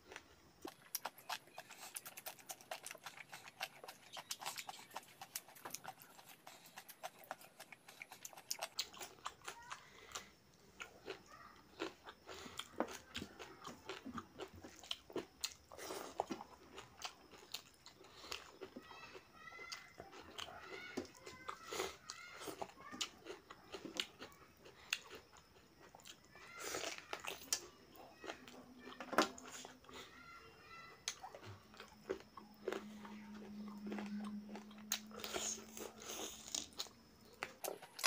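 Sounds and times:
wet chewing: 0:00.0 - 0:30.2, 0:30.9 - 0:38.0
crunching bites of cucumber: 0:31.0 - 0:38.0.

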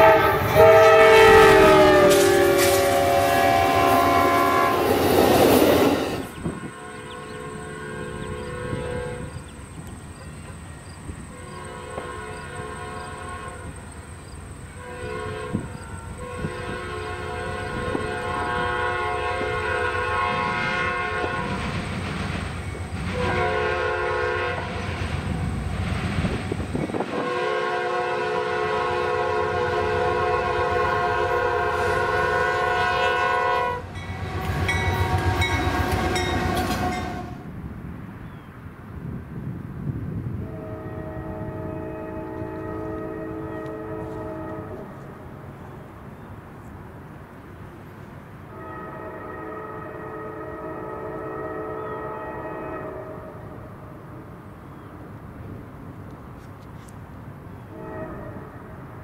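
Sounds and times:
differently pitched horn: 0:00.0 - 0:05.0, 0:06.2 - 0:09.5, 0:11.3 - 0:13.8, 0:14.7 - 0:21.6, 0:27.0 - 0:37.5, 0:40.4 - 0:45.2, 0:48.5 - 0:53.4, 0:57.7 - 0:58.7
train air horn blasts: 0:00.0 - 0:05.2, 0:05.8 - 0:09.6, 0:10.3 - 0:13.9, 0:14.6 - 0:21.7, 0:23.1 - 0:24.8, 0:26.8 - 0:37.5, 0:40.4 - 0:45.4, 0:48.5 - 0:54.3, 0:57.6 - 0:59.0
passing train rumble: 0:00.0 - 0:59.0.

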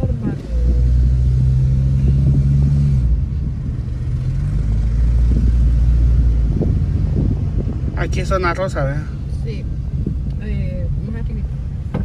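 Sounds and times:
car engine and tyres humming: 0:00.0 - 0:12.0.

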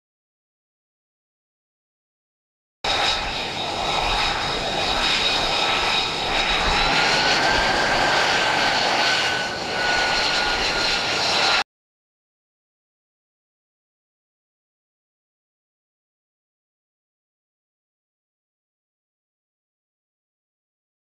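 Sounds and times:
jet engine running with high whine: 0:02.9 - 0:11.7.

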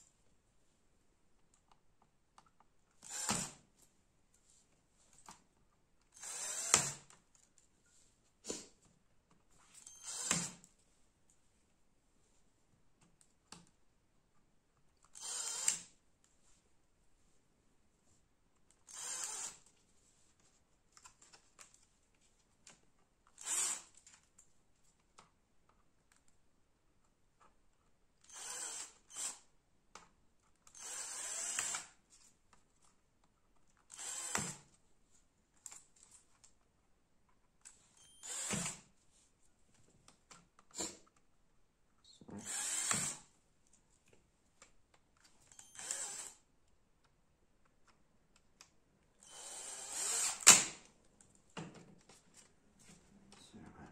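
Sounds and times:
power drill bursts: 0:03.0 - 0:03.5, 0:06.2 - 0:07.0, 0:09.9 - 0:10.6, 0:15.2 - 0:15.8, 0:18.9 - 0:19.6, 0:23.4 - 0:23.9, 0:28.3 - 0:29.4, 0:30.8 - 0:31.9, 0:33.9 - 0:34.6, 0:38.1 - 0:38.8, 0:42.4 - 0:43.2, 0:45.5 - 0:46.4, 0:49.2 - 0:50.7.

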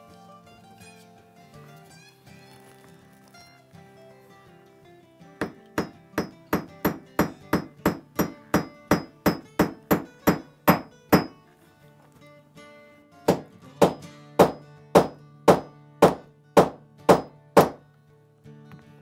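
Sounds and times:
hammer tapping metal setter: 0:05.4 - 0:11.4, 0:13.3 - 0:17.8.

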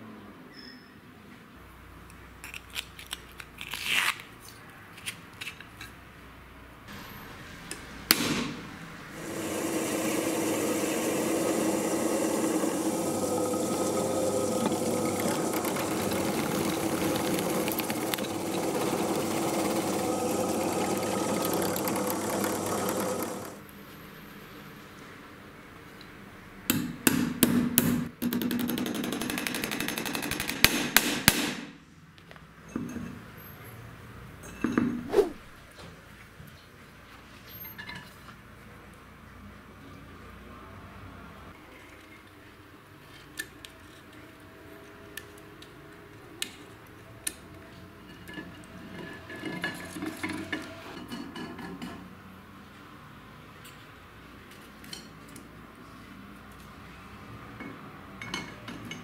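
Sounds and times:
electric drill boring steel: 0:09.2 - 0:23.6.

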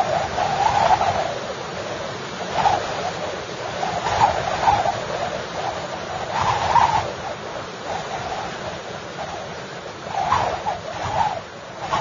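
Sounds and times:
storm wind gusting: 0:00.0 - 0:12.0
wavering wind whistle: 0:00.0 - 0:12.0.

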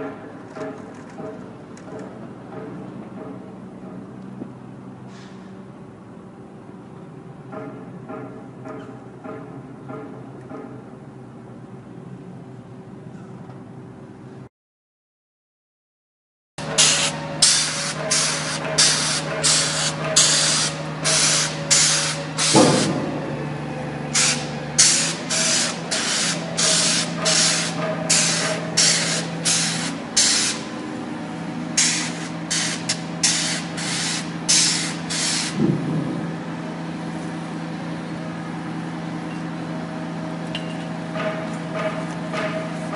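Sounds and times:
spray gun bursts: 0:16.6 - 0:30.9, 0:31.7 - 0:35.6
spray machine droning: 0:16.6 - 0:38.3.

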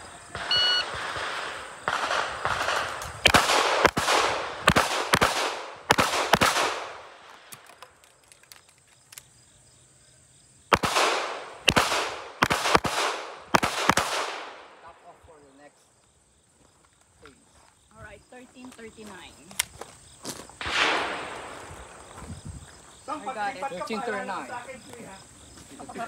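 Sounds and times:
pistol shots with echo: 0:00.3 - 0:07.2, 0:10.7 - 0:14.9, 0:20.6 - 0:22.2
shot timer beep: 0:00.4 - 0:00.9.

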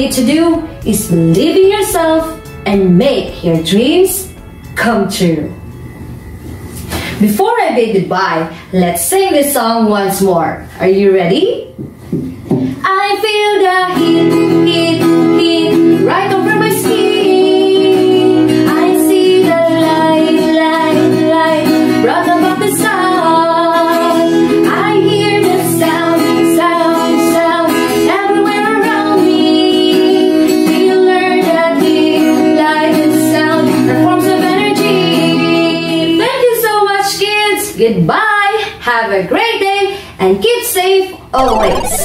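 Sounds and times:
woman singing: 0:12.8 - 0:38.6.

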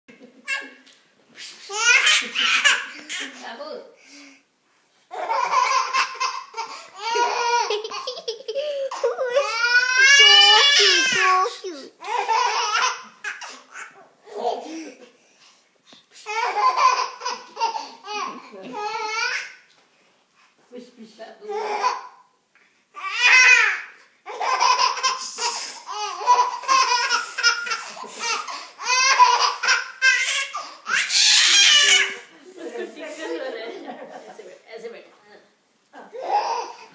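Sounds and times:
baby laughing: 0:01.7 - 0:03.4, 0:05.1 - 0:15.0, 0:16.3 - 0:19.5, 0:24.3 - 0:32.3.

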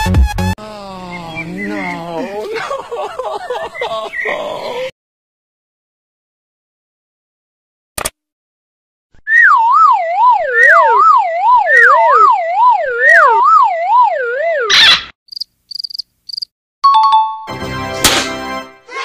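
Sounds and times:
warbling whistle tone: 0:09.3 - 0:14.8.

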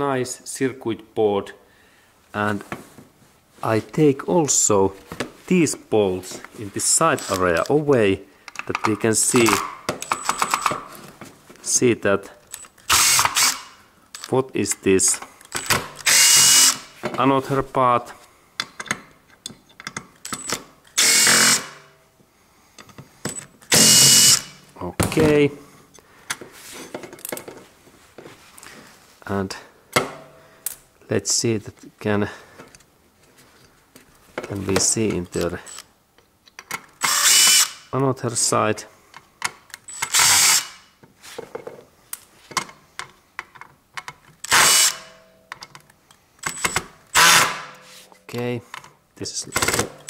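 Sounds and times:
tool and screws clicking: 0:07.1 - 0:07.8, 0:08.5 - 0:11.0, 0:12.4 - 0:14.4, 0:15.1 - 0:16.9, 0:18.6 - 0:21.9, 0:22.8 - 0:24.6, 0:35.3 - 0:37.8, 0:39.2 - 0:40.9, 0:42.5 - 0:47.8, 0:48.8 - 0:50.0
small screws and tools clicking: 0:08.5 - 0:10.8, 0:12.5 - 0:14.4
impact driver bursts: 0:12.9 - 0:13.8, 0:15.6 - 0:17.0, 0:20.4 - 0:21.9, 0:23.7 - 0:24.6, 0:37.0 - 0:37.9, 0:39.9 - 0:40.9, 0:44.5 - 0:45.2, 0:46.4 - 0:47.8.

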